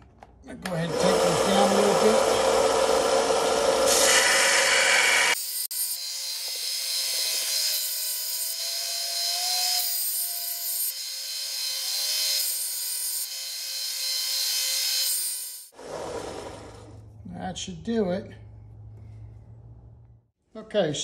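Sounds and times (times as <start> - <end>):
belt sander grinding steel: 0.8 - 15.7.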